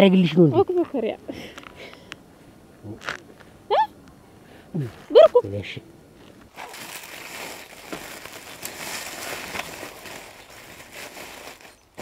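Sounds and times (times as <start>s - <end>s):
hand rummaging rustling: 6.5s - 12.0s.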